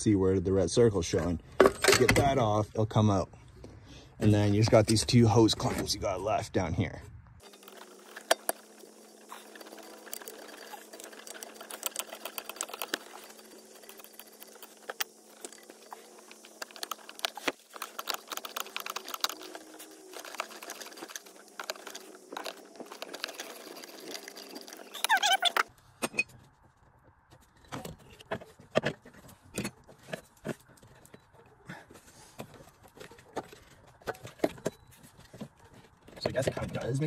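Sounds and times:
tool clicking and scraping on hoses: 7.4 - 26.4.

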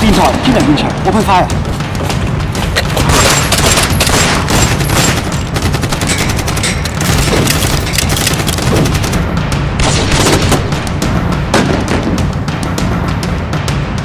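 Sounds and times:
rapid automatic gunfire: 3.0 - 10.9.

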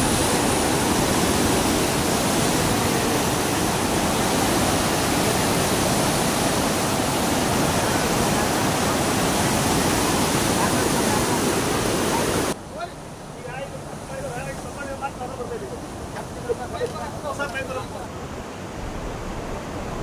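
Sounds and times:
floodwater rushing and churning: 0.0 - 20.0.

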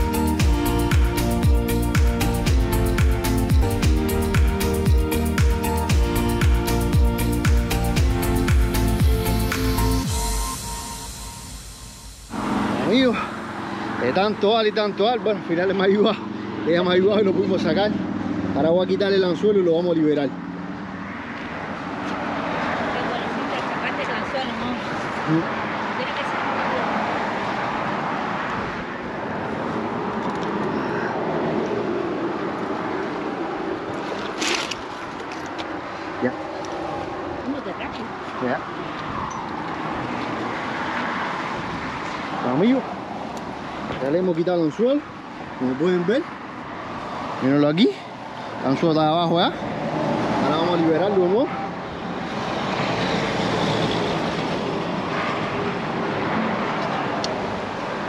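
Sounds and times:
traffic passing on a bridge: 0.0 - 58.0.

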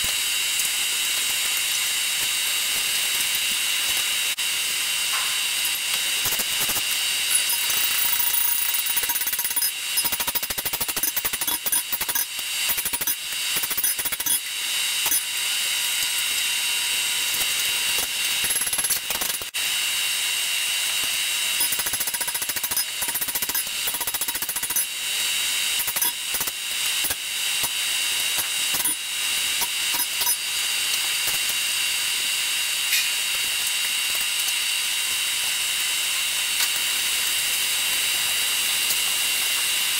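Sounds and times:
high fan whir: 0.0 - 39.9
hammer striking steel on anvil: 5.1 - 5.8.

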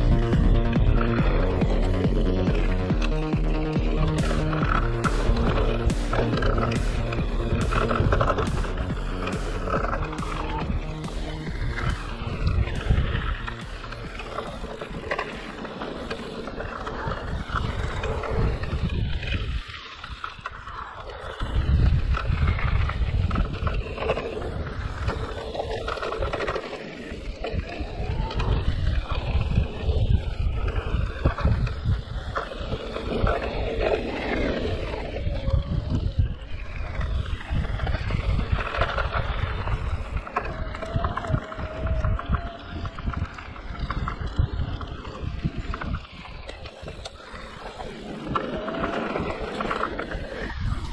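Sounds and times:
bike tyres rumbling on dirt: 0.0 - 50.9
wind buffeting microphone: 0.0 - 50.9.

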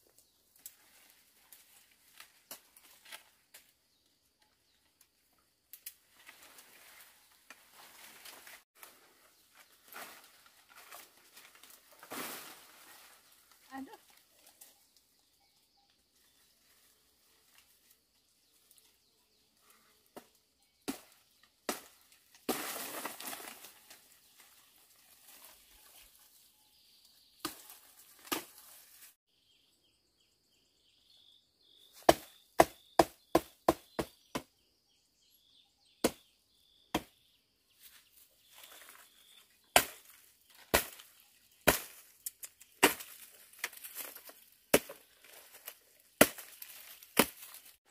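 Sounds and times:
leaves and twigs rustling: 0.0 - 29.2, 37.7 - 47.9
knife chopping branches: 20.1 - 24.0, 27.4 - 29.0, 31.9 - 34.5, 36.0 - 36.3, 36.9 - 37.1, 39.7 - 47.8.

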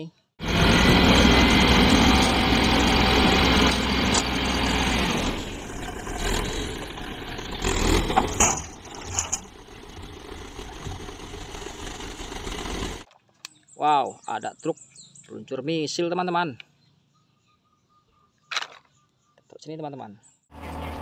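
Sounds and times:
diesel engine running hard: 0.4 - 13.0, 20.5 - 21.0
soil sliding out: 0.5 - 13.0
knocks and rattles: 5.9 - 13.3.

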